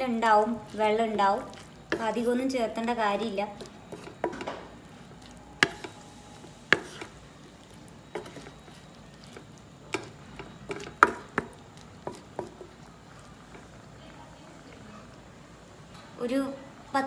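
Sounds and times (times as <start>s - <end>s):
faint sizzle of gravy: 0.0s - 17.0s
spoon scraping metal pan: 5.6s - 7.3s, 8.1s - 13.7s.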